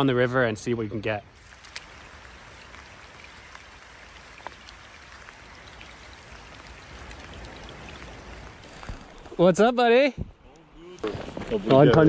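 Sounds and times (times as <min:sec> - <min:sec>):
steady rain hissing: 0:00.9 - 0:09.2.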